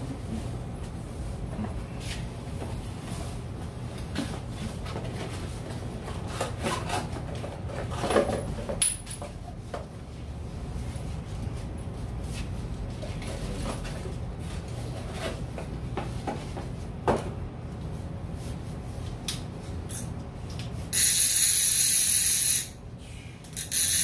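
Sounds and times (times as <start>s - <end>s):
fishing reel clicker ratcheting: 23.5s - 24.0s.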